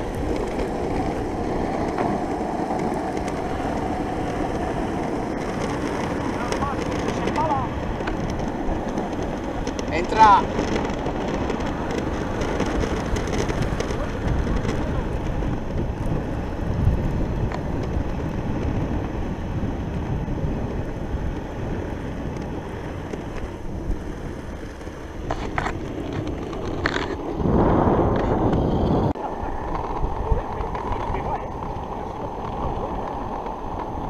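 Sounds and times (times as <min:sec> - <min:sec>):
wheels rolling over asphalt: 0:00.0 - 0:34.0
wind buffeting microphone: 0:00.0 - 0:34.0.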